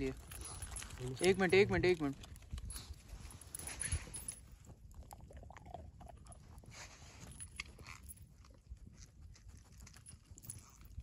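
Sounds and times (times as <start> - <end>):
dog chewing food: 4.6 - 6.8, 7.4 - 11.0.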